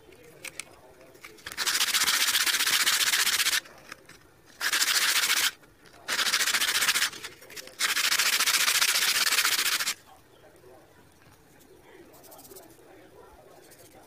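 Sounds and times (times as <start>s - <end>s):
sandpaper rubbing on wooden stick: 1.4s - 3.7s, 4.5s - 10.0s.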